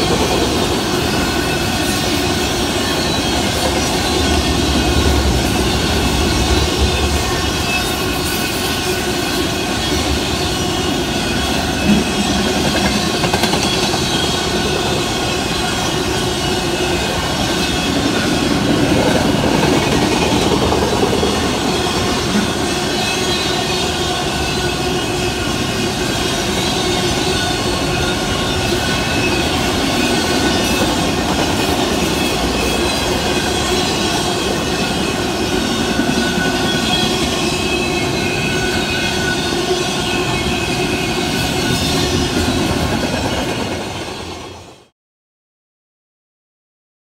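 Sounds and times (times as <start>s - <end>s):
freight train wheels clattering: 0.0s - 44.6s.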